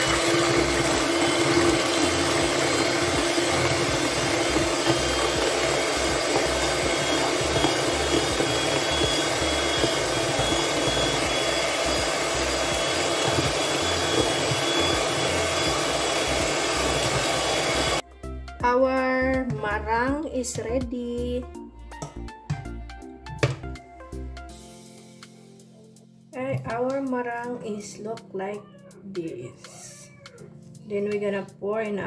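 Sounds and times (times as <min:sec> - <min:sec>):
electric hand mixer whipping: 0:00.0 - 0:18.0.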